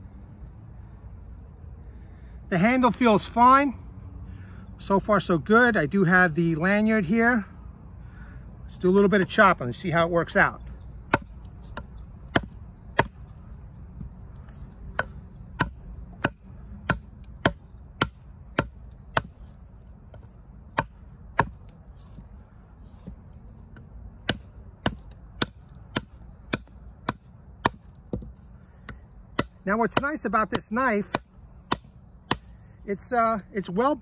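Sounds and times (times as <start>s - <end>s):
knife chopping wood: 11.1s - 13.3s, 14.0s - 22.3s, 22.9s - 32.6s.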